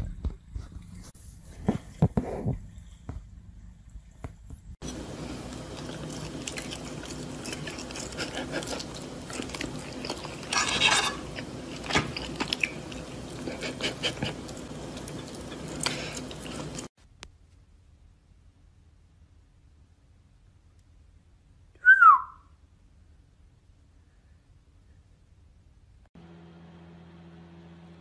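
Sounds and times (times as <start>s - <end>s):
low background hum: 0.0s - 28.0s
chewing: 4.8s - 16.9s
cutlery scraping on plate: 10.1s - 12.1s.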